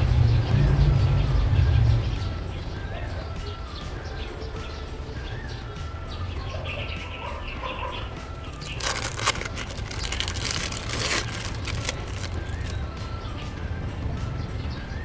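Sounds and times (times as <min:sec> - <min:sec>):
plastic wrapper crinkling: 0:08.4 - 0:12.8.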